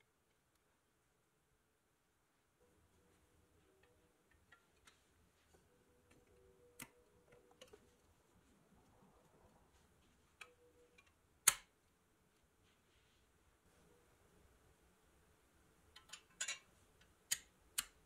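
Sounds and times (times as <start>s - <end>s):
metal toy clicks and taps: 16.0s - 18.0s.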